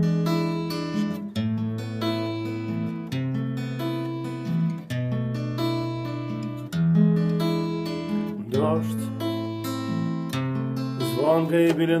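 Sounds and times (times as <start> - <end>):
fingerpicked acoustic guitar: 0.0 - 12.0.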